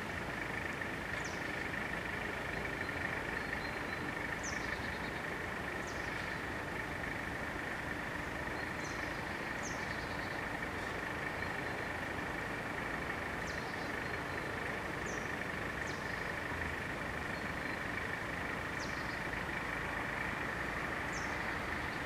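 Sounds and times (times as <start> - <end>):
bird chirps: 2.4 - 6.5, 8.2 - 12.1, 13.4 - 16.4, 18.7 - 19.4, 21.1 - 22.0.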